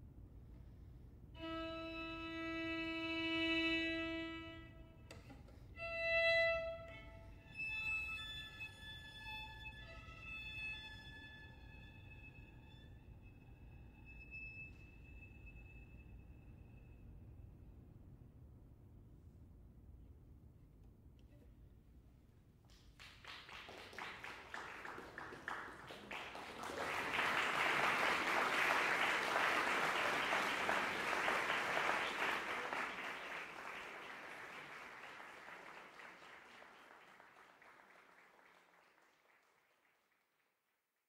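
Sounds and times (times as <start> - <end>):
audience applause: 22.7 - 40.6.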